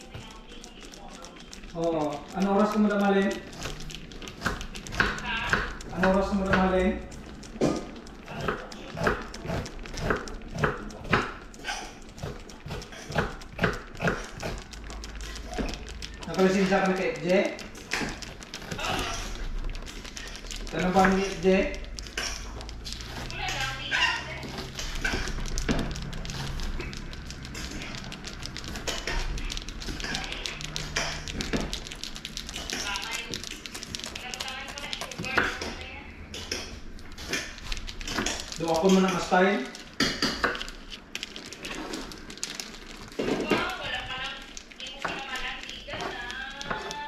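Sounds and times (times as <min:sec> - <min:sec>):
cheese grater rasping: 0:00.0 - 0:47.0.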